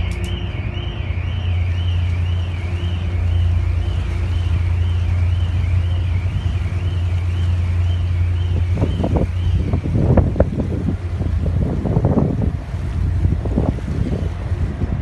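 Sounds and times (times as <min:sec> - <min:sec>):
warbling electronic tone: 0:00.0 - 0:11.0
ferry engines droning: 0:00.0 - 0:15.0
rush of boat wake: 0:00.0 - 0:15.0
wind on microphone: 0:00.0 - 0:15.0.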